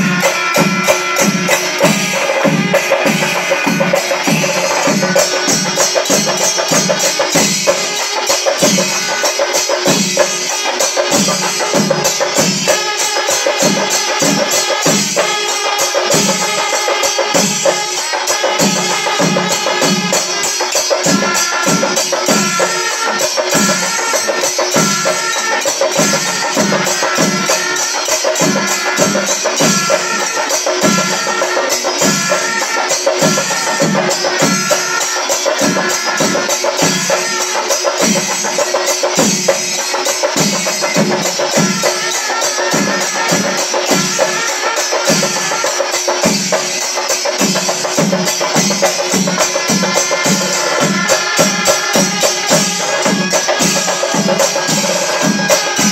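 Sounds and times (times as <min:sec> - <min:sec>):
cymbals clashing: 0:00.0 - 0:55.9
drums beating: 0:00.0 - 0:55.9.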